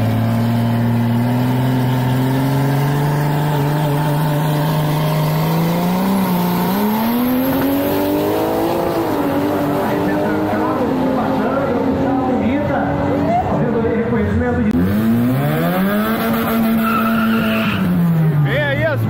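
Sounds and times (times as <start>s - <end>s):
racing car engine at full throttle: 0.0s - 19.0s.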